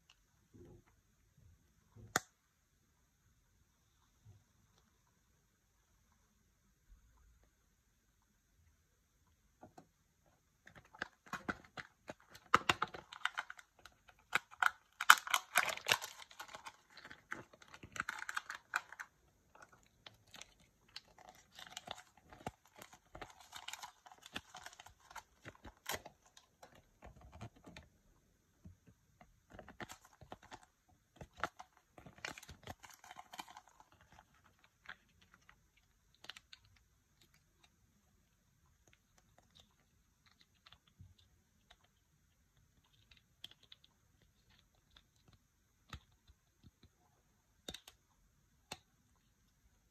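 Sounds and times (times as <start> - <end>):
plastic wrapper crinkling and tearing: 10.6 - 27.9, 29.4 - 37.7.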